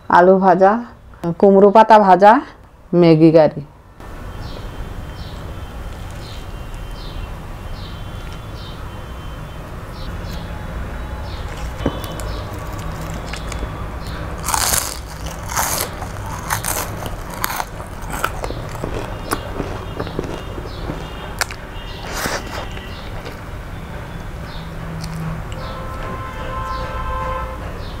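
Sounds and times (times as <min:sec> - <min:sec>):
crunchy chewing: 0:05.7 - 0:07.0, 0:11.2 - 0:23.5, 0:24.9 - 0:26.2.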